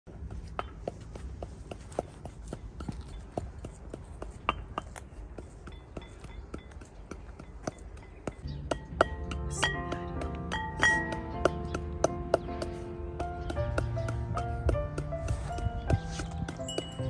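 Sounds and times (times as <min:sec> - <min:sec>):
sharp taps and clicks: 0:00.5 - 0:17.0.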